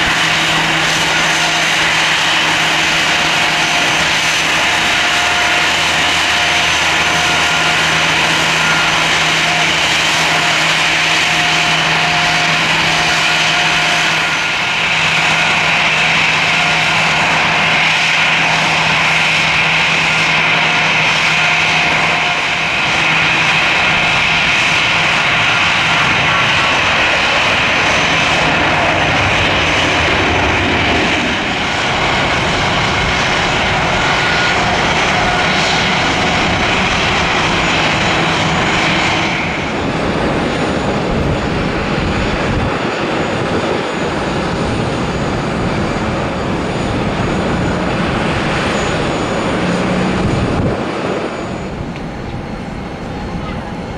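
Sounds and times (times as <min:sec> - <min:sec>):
jet engine rumble: 0:00.0 - 0:53.9
jet engine whine: 0:00.0 - 0:53.9.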